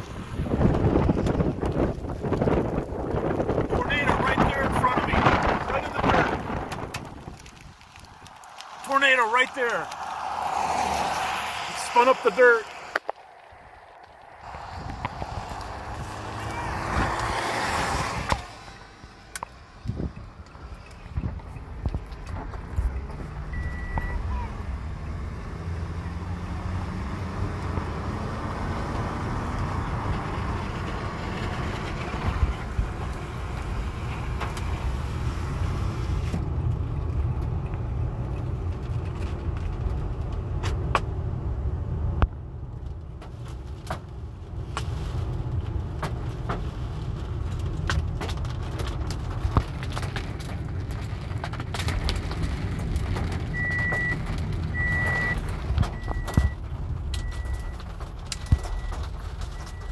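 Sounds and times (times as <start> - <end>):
car rumble from inside cabin: 0.0 - 10.0, 14.1 - 59.9
rain hissing on car: 0.0 - 40.5, 42.9 - 59.9
raindrops tapping: 0.6 - 16.4, 45.5 - 59.9
high electronic beep: 23.5 - 24.2.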